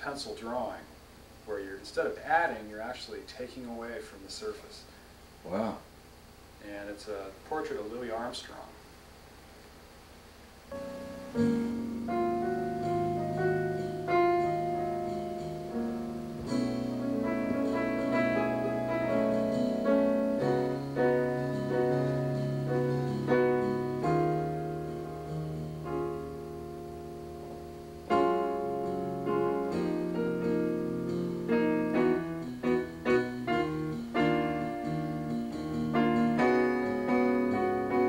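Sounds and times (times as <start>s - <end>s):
piano music: 10.7s - 38.0s.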